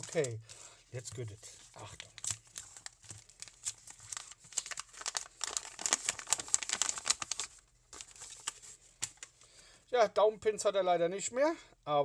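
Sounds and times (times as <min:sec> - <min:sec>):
packaging crinkling and tearing: 0:00.0 - 0:09.4.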